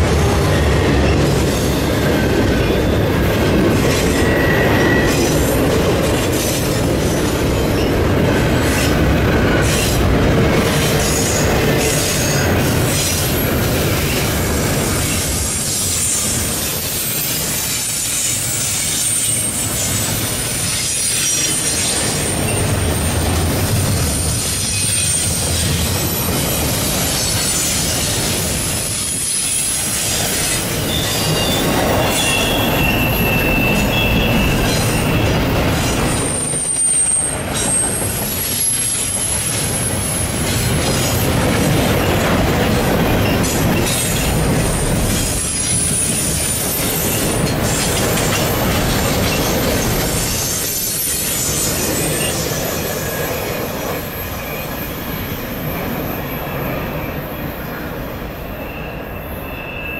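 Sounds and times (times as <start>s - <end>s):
train wheels rumbling on rail: 0.0s - 59.9s
high-pitched wheel squeal: 3.9s - 5.4s, 29.0s - 40.1s, 58.5s - 59.9s.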